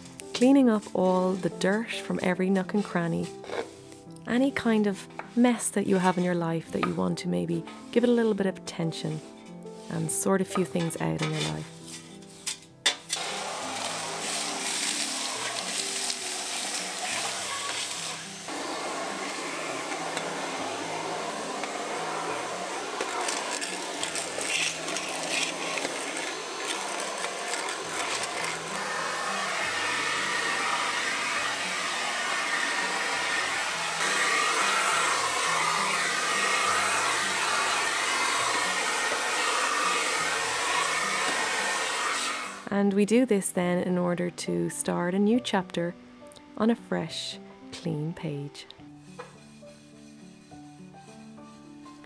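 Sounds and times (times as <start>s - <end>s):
soft background music: 0.0s - 52.0s
vacuum cleaner running: 13.2s - 42.7s.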